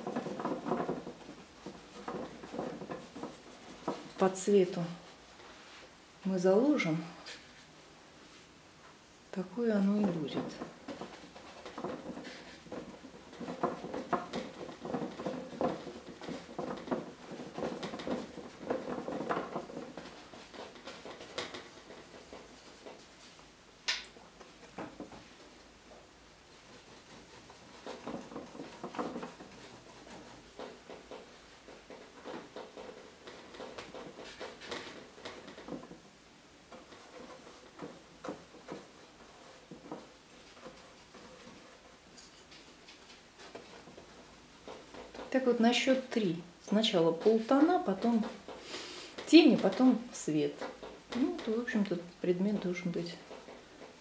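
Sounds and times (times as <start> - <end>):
paintbrush dabbing on canvas: 0.0 - 5.8, 26.5 - 36.0, 36.6 - 54.0.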